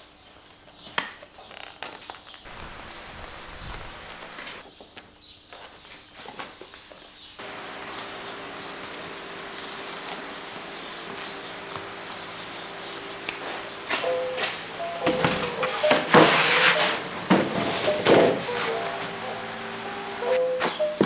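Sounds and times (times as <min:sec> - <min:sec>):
cardboard and tape rustling: 0:00.6 - 0:04.6, 0:05.6 - 0:19.2
workshop room noise: 0:02.5 - 0:04.6, 0:07.4 - 0:21.0
steady low hum: 0:07.4 - 0:21.0.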